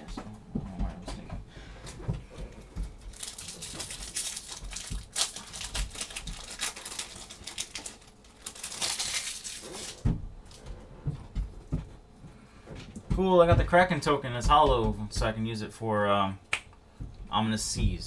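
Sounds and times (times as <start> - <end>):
wrapper crinkling and tearing: 3.1 - 10.0.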